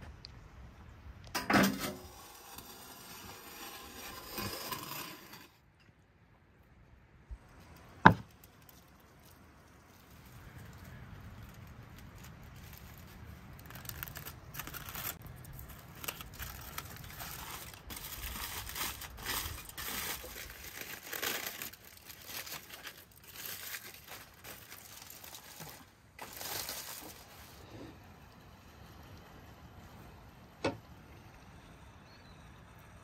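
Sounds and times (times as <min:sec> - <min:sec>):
foil crinkling and rustling: 0:08.1 - 0:27.8.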